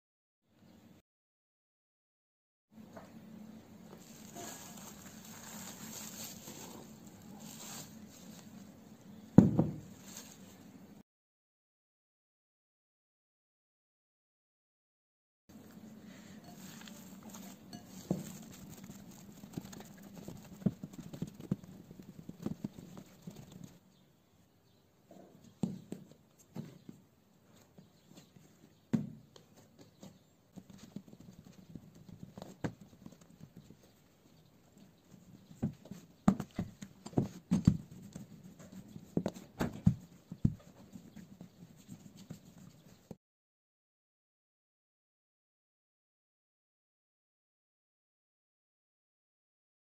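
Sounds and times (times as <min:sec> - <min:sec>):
hands kneading dough on a table: 0:03.9 - 0:08.7, 0:16.4 - 0:23.8, 0:25.6 - 0:43.2
rolling pin knocking on work surface: 0:09.4 - 0:09.9.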